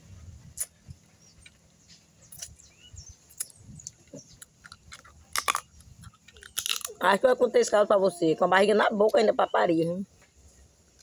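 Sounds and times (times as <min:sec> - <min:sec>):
crab shell cracking and chewing: 0:03.4 - 0:07.0.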